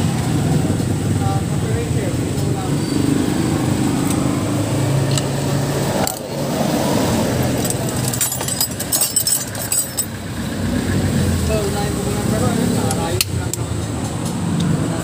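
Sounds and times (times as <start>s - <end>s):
metal hand tools clinking: 7.5s - 10.2s.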